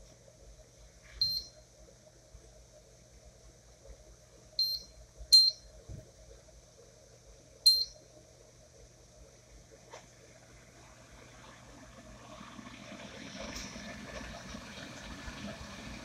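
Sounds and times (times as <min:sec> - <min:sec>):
short high beeps: 0:01.2 - 0:01.5, 0:04.6 - 0:05.7, 0:07.7 - 0:08.0.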